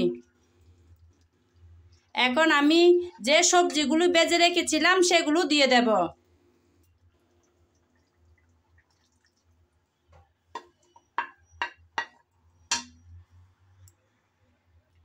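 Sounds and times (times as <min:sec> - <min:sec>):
wooden spatula knocking on plate: 0:10.6 - 0:13.0
plate ringing: 0:12.7 - 0:13.0.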